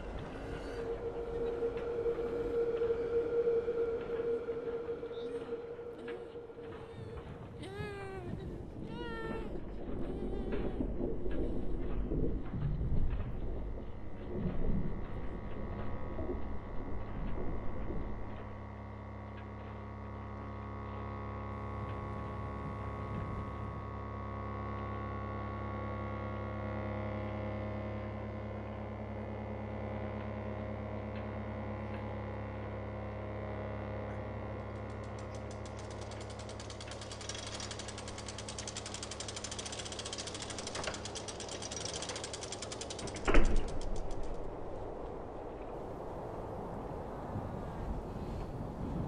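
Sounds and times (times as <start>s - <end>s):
low ambient drone: 0.0s - 49.0s
fast mechanical rattle: 34.6s - 44.6s.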